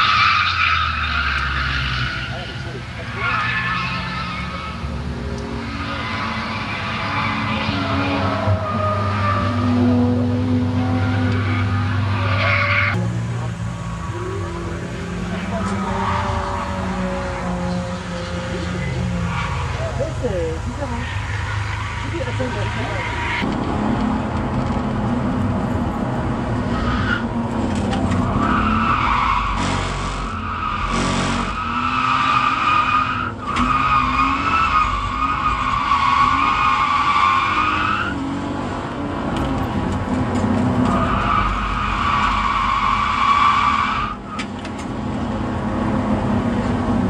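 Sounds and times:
tyres squealing: 0.0 - 4.9
car engine running under load: 37.4 - 47.0.

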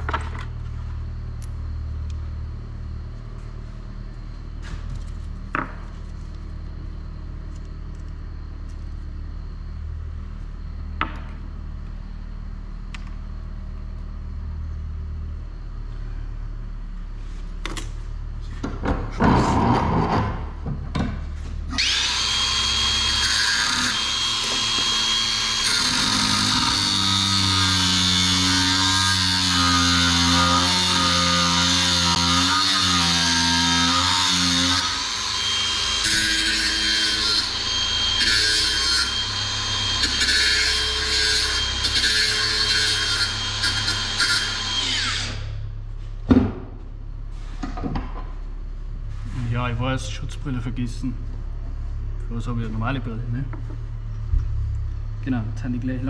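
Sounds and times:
electric grinder on metal: 21.7 - 45.6.

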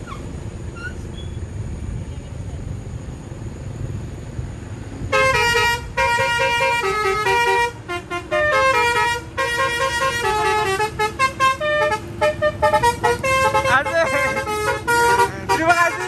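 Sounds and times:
low engine rumble: 0.0 - 16.0
melodic truck air horn: 5.1 - 16.0.

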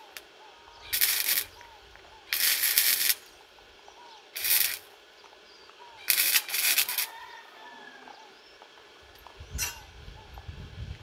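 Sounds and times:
welding arc crackling: 0.0 - 7.6.

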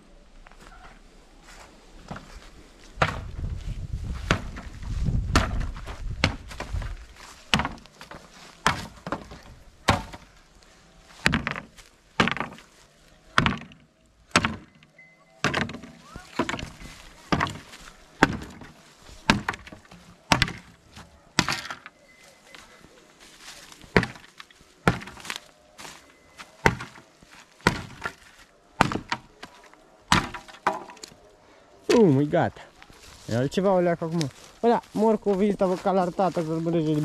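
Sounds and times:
heavy blows on wood: 2.9 - 10.3, 11.2 - 12.7, 15.4 - 21.9, 23.9 - 25.4, 26.6 - 27.0.

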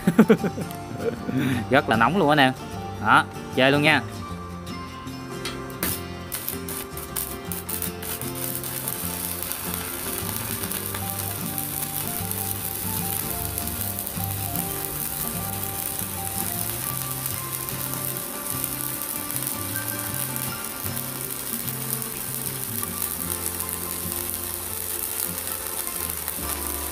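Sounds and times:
welding arc crackling: 5.4 - 26.9.

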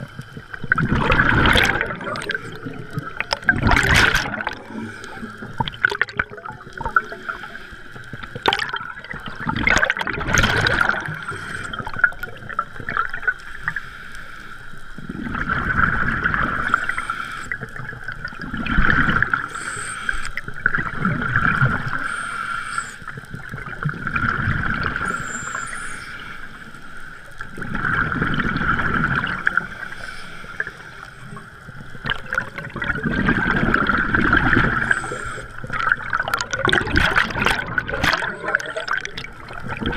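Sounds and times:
bubbly underwater exhalations: 0.0 - 7.3, 8.4 - 13.0, 32.0 - 39.9
regulator hiss: 6.8 - 8.4, 16.4 - 17.9, 19.3 - 20.6, 21.8 - 23.4, 25.0 - 27.4, 29.3 - 32.1, 34.6 - 36.0.

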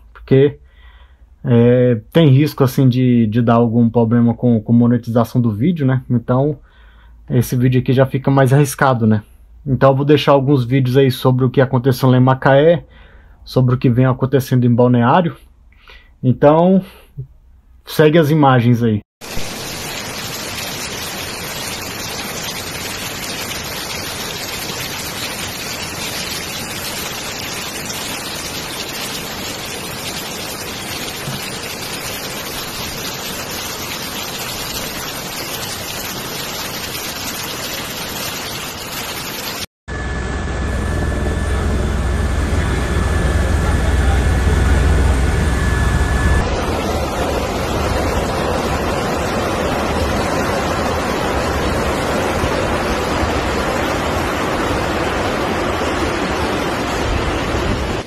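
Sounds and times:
heavy rain: 19.2 - 39.7, 41.6 - 58.0
rushing floodwater: 19.2 - 39.7, 46.4 - 58.0
high engine whine: 39.9 - 49.2
aircraft engine rumble: 39.9 - 49.4.

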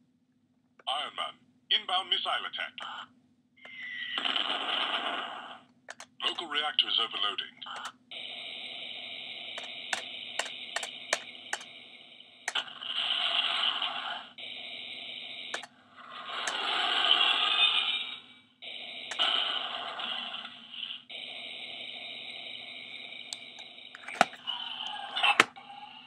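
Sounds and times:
sharp clicks: 5.9 - 6.1, 7.7 - 7.9, 9.6 - 11.7, 23.4 - 24.4.

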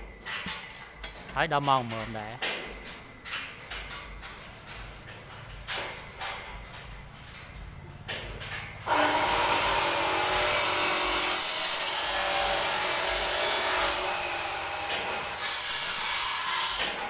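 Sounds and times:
power tool running: 8.8 - 17.0.

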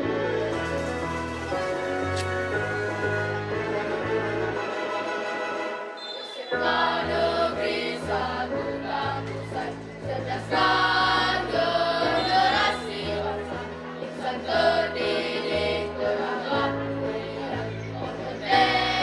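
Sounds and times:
instrumental accompaniment with bass: 0.0 - 6.0
children singing together: 6.1 - 19.0.

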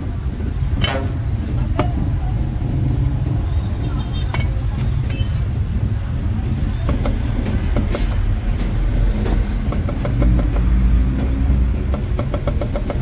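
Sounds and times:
road traffic rumble: 0.0 - 13.0
cleaver chopping on wooden block: 9.3 - 13.0.

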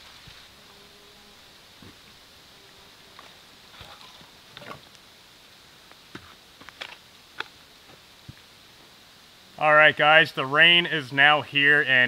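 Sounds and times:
light rain patter: 0.0 - 0.6.

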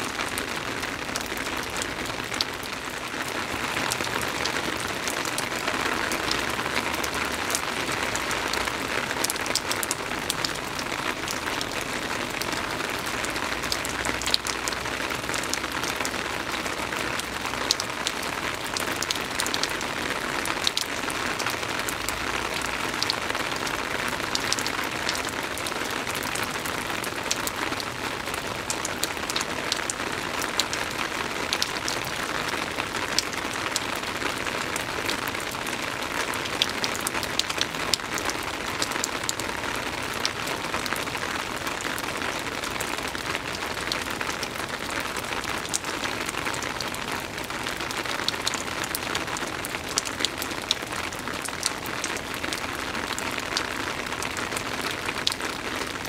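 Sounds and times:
raindrop ticks: 55.1 - 55.4.

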